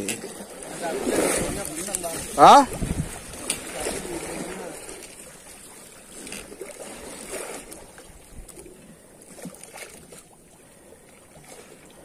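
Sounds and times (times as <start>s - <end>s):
water washing against boat hull: 0.0s - 10.4s
wind on microphone: 0.7s - 5.0s, 7.2s - 8.8s.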